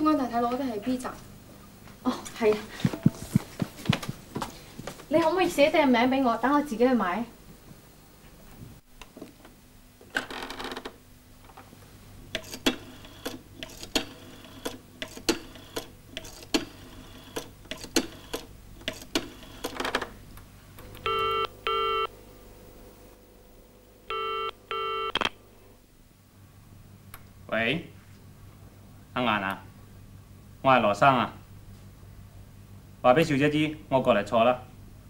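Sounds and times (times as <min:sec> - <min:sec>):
telephone double ring: 0:21.0 - 0:22.1.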